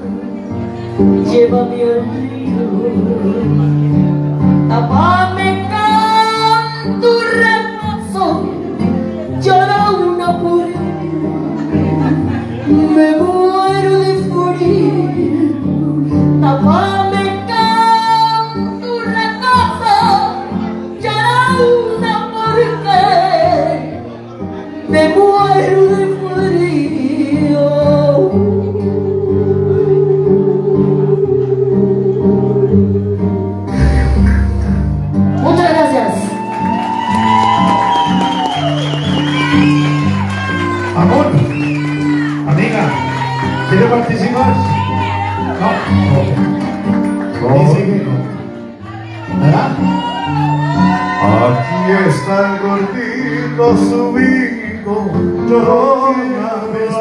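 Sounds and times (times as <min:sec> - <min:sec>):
woman singing karaoke: 0:01.1 - 0:03.8, 0:04.6 - 0:24.0, 0:24.8 - 0:33.5.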